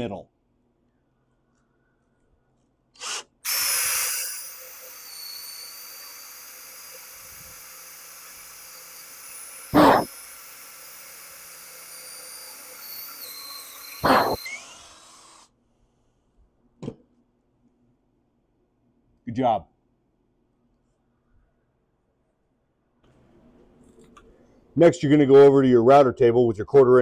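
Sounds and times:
cordless drill boring into wood: 3.0 - 15.5.

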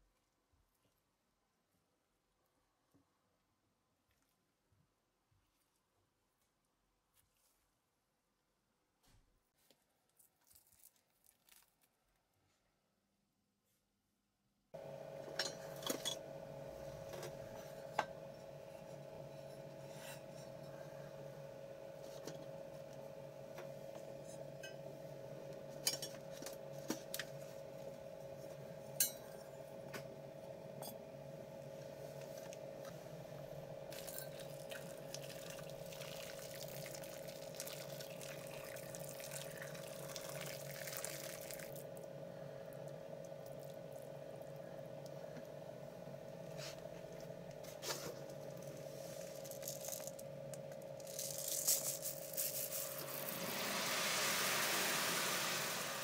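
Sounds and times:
steady hum: 14.8 - 56.0
water pouring into tub: 34.0 - 41.8, 52.9 - 56.0.

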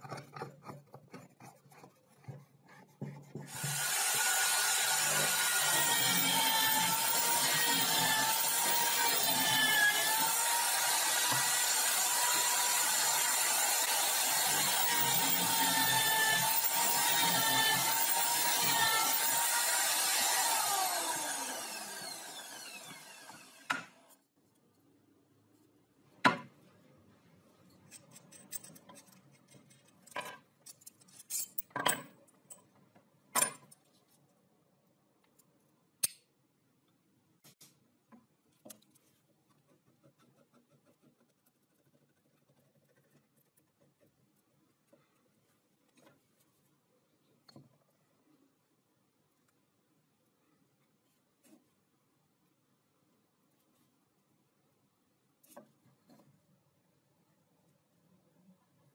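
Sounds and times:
electric drill boring into wood: 3.5 - 23.8.

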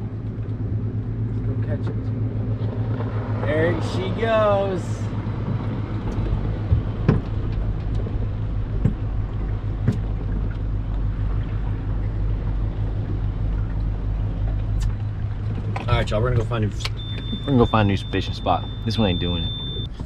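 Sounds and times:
outboard engine idling: 0.0 - 20.0
water noise: 0.0 - 20.0
wind: 0.0 - 20.0.

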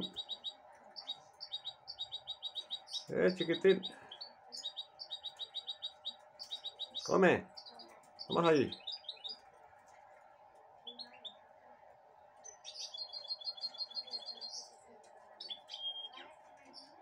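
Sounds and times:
bird chirping: 0.0 - 17.0
bird whistle: 15.4 - 16.2.

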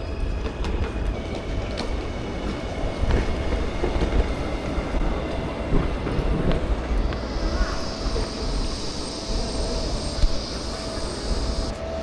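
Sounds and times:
train rumbling: 0.0 - 12.0
faint clicks: 10.1 - 11.0.

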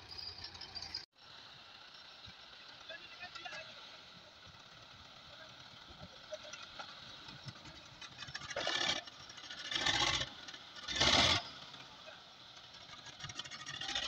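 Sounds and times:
dozer blade scraping soil: 8.1 - 11.7.

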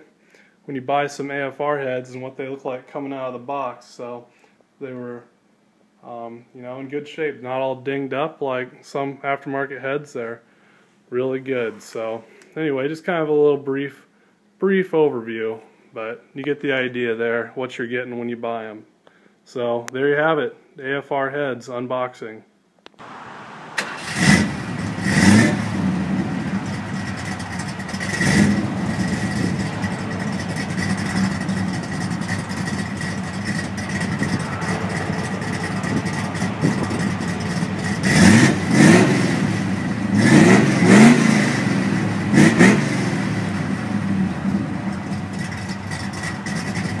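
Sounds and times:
car engine idling: 23.0 - 47.0
engine throttle blips: 23.0 - 47.0.

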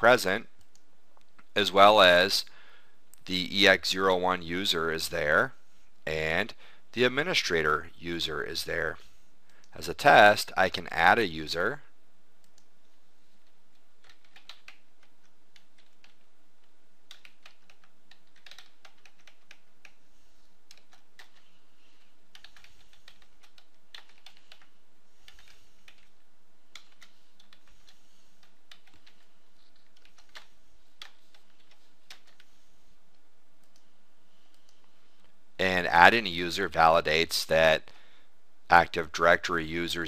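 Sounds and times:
computer keyboard typing: 13.4 - 20.1, 20.7 - 32.6.

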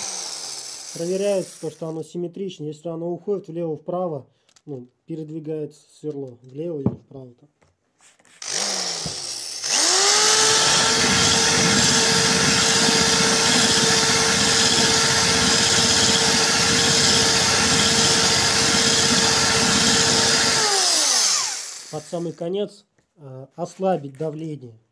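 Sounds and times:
electric drill grinding glass: 0.0 - 1.8, 8.4 - 22.4.

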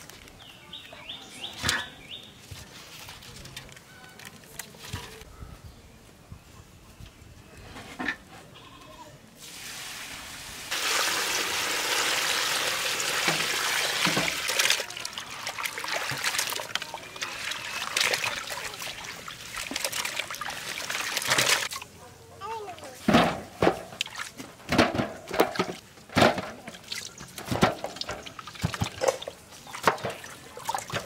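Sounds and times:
water pouring into a metal pot: 10.7 - 21.8
hands splashing fruit in water: 13.2 - 21.8.

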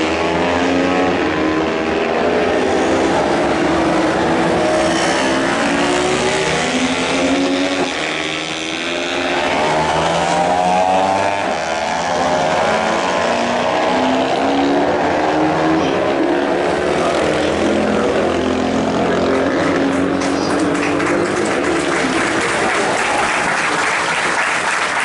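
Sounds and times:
racing motorcycle engines: 0.0 - 25.0.

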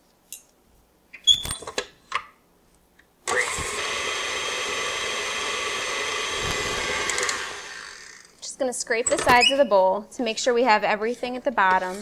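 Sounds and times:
stand mixer running at high speed: 3.4 - 8.0.

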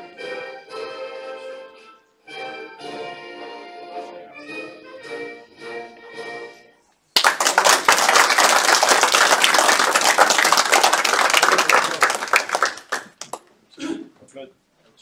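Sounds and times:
crowd applauding: 7.2 - 13.4.

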